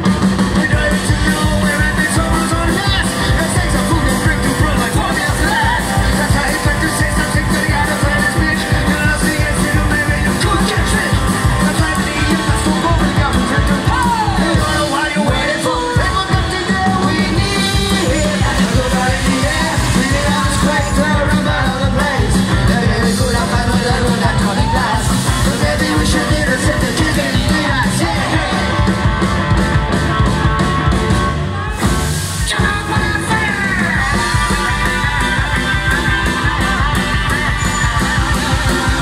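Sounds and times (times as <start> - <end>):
bass: 0.0 - 39.0
drums: 0.0 - 39.0
electric guitar: 0.0 - 39.0
people singing and shouting: 0.0 - 39.0.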